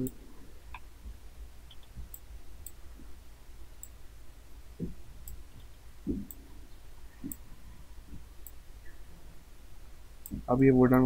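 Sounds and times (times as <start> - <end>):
faint steady low hum: 0.0 - 11.0
computer mouse clicking: 1.6 - 2.8, 7.2 - 7.5
soft low thumps: 4.7 - 9.1.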